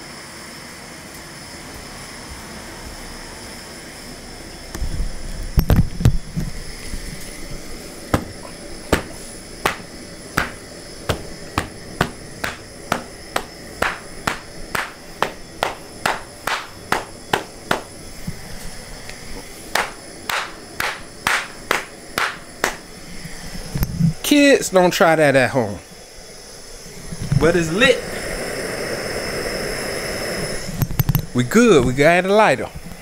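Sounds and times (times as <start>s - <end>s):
flip-flop slapping concrete: 8.2s - 17.9s, 19.8s - 22.8s.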